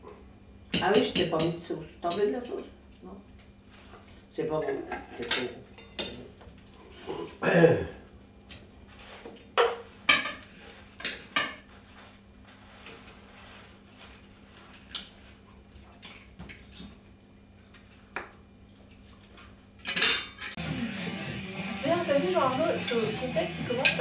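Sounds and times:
cutlery clinking on plates: 0:04.9 - 0:06.2, 0:19.8 - 0:20.6, 0:23.8 - 0:24.0
plates clinking: 0:22.4 - 0:24.0.

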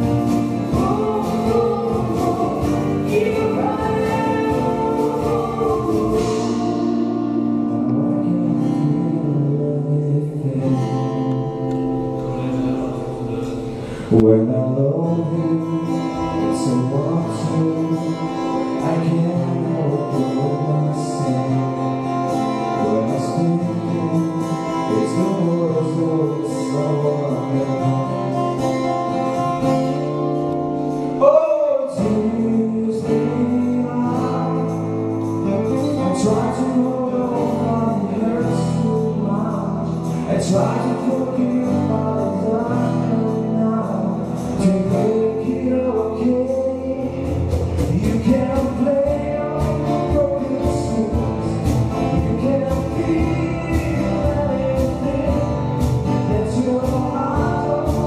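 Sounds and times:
drum kit: 0:00.0 - 0:07.4, 0:43.9 - 0:58.0
person singing: 0:00.0 - 0:29.9, 0:30.9 - 0:58.0
upright double bass: 0:00.0 - 0:31.2, 0:32.0 - 0:58.0
acoustic guitar: 0:00.0 - 0:58.0
keyboard: 0:00.0 - 0:58.0.

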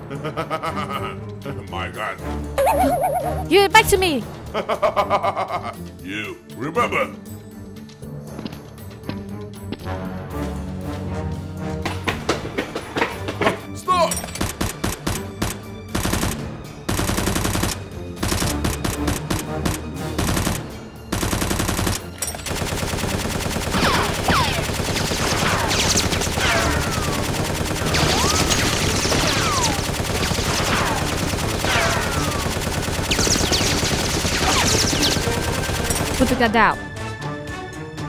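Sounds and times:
machine-gun fire: 0:14.4 - 0:36.4.

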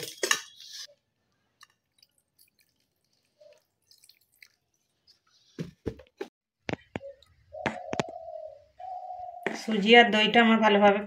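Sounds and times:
water dripping and splashing: 0:01.6 - 0:05.4.

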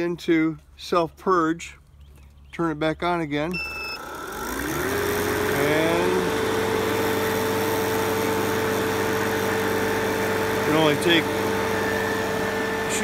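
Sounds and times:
compressor motor whining: 0:03.6 - 0:13.0.

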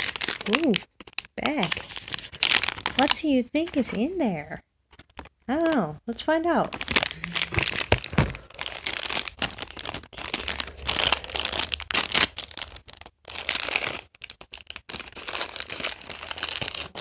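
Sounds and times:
plastic bag crinkling: 0:00.0 - 0:04.1, 0:06.6 - 0:17.0.

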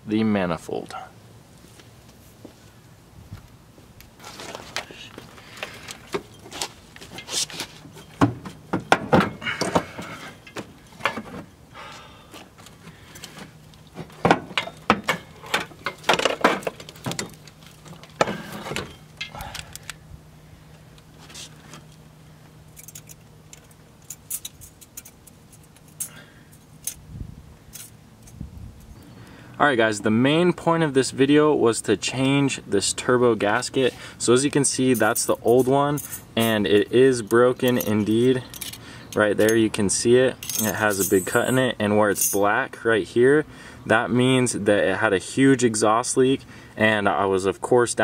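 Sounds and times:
metallic clinks and knocks: 0:14.3 - 0:19.9, 0:22.7 - 0:27.1, 0:27.7 - 0:28.4, 0:34.9 - 0:39.6, 0:40.4 - 0:42.5.

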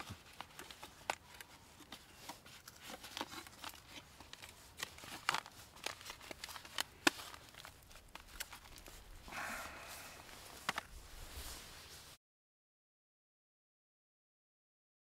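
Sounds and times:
light clicks and crinkling rustles: 0:00.0 - 0:09.3, 0:09.9 - 0:12.2.

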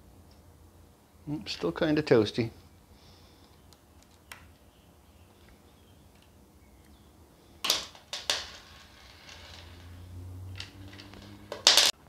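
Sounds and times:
hardware clattering: 0:07.6 - 0:12.0.

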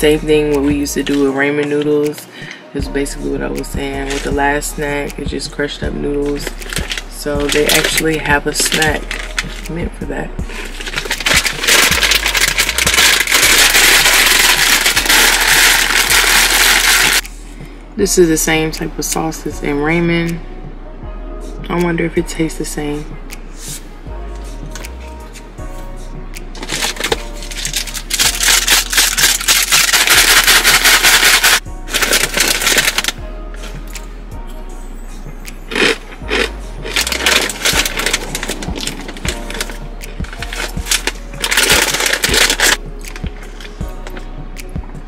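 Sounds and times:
background music: 0:00.0 - 0:45.0
plastic wrapper crinkling: 0:04.1 - 0:04.3, 0:06.4 - 0:09.7, 0:10.5 - 0:17.2, 0:26.6 - 0:33.2, 0:35.7 - 0:42.8
dry noodles crackling: 0:06.2 - 0:09.8, 0:10.5 - 0:17.2, 0:26.6 - 0:33.2, 0:35.7 - 0:42.8.

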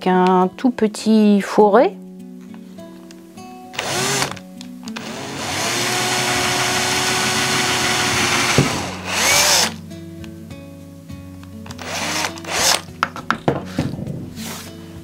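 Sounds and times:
cordless drill boring wood: 0:03.8 - 0:04.4, 0:05.0 - 0:09.8, 0:11.7 - 0:12.8
drill click: 0:03.8 - 0:04.4, 0:05.0 - 0:09.8, 0:11.7 - 0:12.8.

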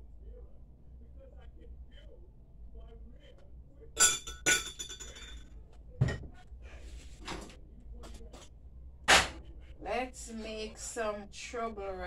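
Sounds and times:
glass cup clinking: 0:04.0 - 0:05.4
soft handling noises: 0:04.9 - 0:08.6.

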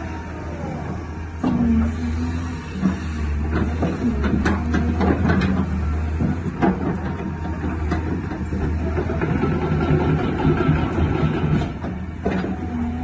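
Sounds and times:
diesel engine hum: 0:00.0 - 0:13.0
metal clanks and knocks: 0:02.8 - 0:13.0.

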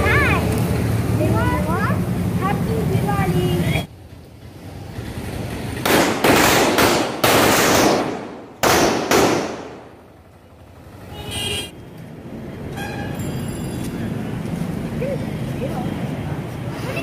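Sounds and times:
firecrackers banging: 0:05.1 - 0:10.2.

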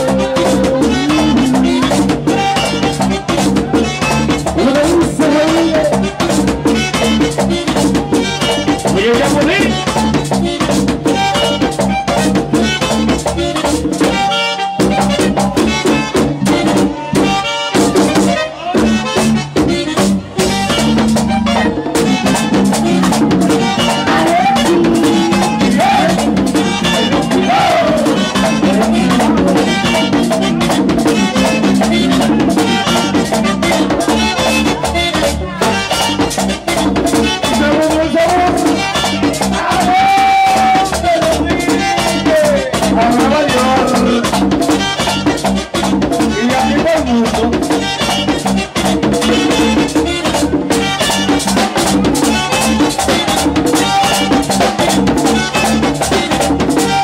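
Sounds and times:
latin dance music: 0:00.0 - 0:57.0.

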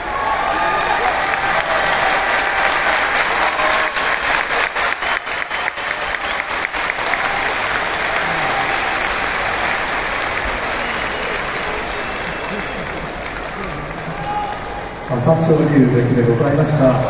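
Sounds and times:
large audience applauding: 0:00.0 - 0:17.0
sharp close hand claps: 0:01.3 - 0:14.3.

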